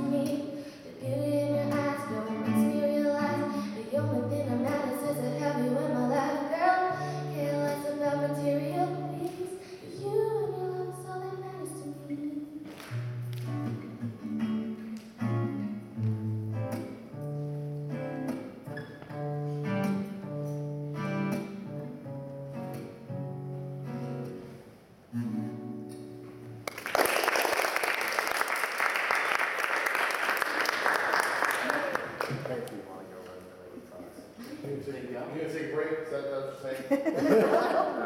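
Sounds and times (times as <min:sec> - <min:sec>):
acoustic guitar playing: 0:00.0 - 0:26.7
audience applause: 0:26.6 - 0:32.7.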